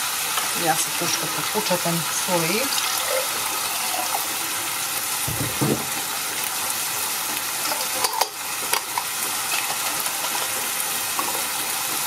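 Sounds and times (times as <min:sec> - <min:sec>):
meat sizzling in a frying pan: 0:00.0 - 0:12.0
dull knock: 0:05.3 - 0:06.0.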